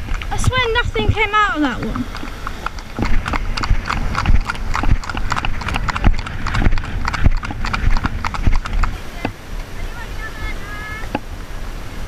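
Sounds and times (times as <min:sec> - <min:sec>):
horses' hooves clip-clopping on tarmac: 0:00.0 - 0:09.4.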